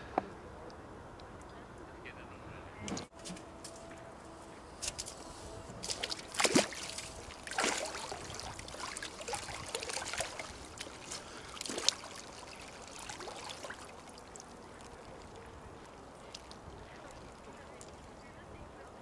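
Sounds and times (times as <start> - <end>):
water splashing and sloshing: 4.8 - 19.0.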